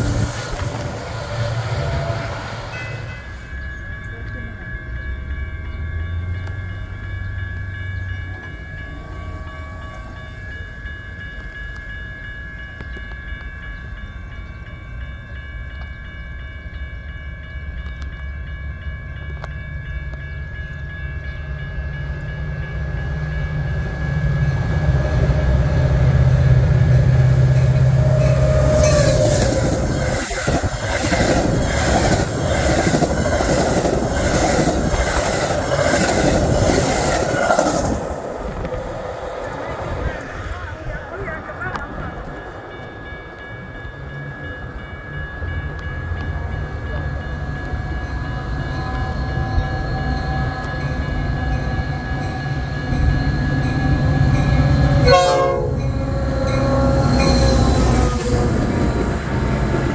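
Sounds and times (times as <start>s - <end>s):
train wheels clattering on rails: 0.0s - 8.9s, 24.6s - 40.4s
train engine rumble: 0.0s - 59.9s.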